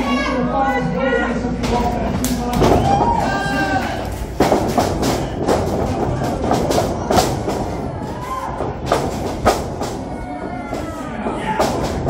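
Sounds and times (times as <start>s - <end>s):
crowd hubbub: 0.0s - 12.0s
wrestling slaps and thuds: 4.1s - 10.2s.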